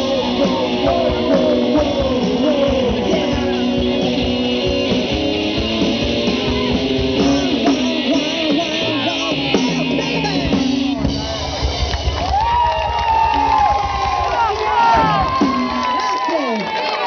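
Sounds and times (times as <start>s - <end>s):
electric guitar sliding notes: 0.0s - 11.7s
rock band playing: 0.0s - 17.0s.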